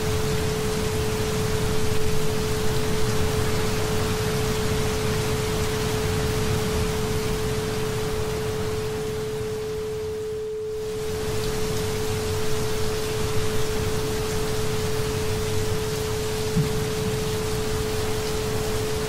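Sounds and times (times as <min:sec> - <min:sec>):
rainfall: 0:00.0 - 0:19.0
steady tone: 0:08.3 - 0:12.2.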